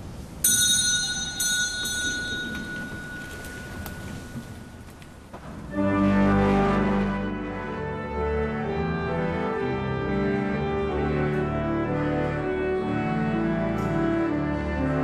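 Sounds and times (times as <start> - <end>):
pipe organ playing sacred music: 5.7 - 15.0.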